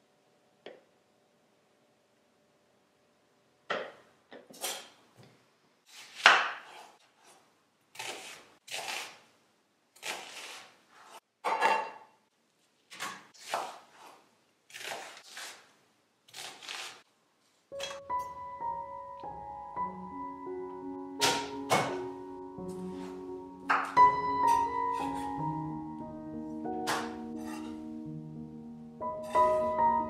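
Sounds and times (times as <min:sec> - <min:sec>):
knife cutting onion on board: 0:05.9 - 0:09.2, 0:10.0 - 0:12.0, 0:12.9 - 0:15.7, 0:16.3 - 0:17.0, 0:26.8 - 0:27.9, 0:29.2 - 0:29.7
piano music: 0:17.7 - 0:30.0.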